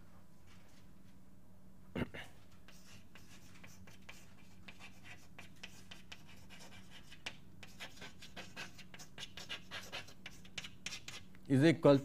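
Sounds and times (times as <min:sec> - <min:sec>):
faint electrical hum: 0:00.0 - 0:12.0
pen scratching on paper: 0:02.7 - 0:11.2.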